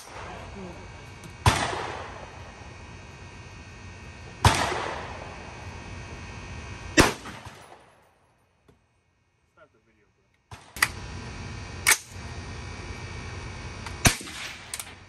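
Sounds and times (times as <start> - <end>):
rifle shots echoing: 1.4 - 2.4, 4.4 - 5.4, 7.0 - 7.9, 14.0 - 14.7.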